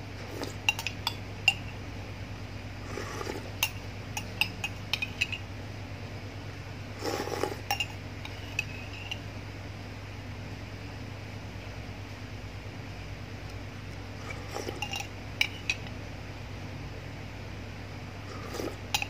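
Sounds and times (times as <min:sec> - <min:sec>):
metal spoon clinking on glass: 0:03.6 - 0:05.4, 0:07.7 - 0:09.2.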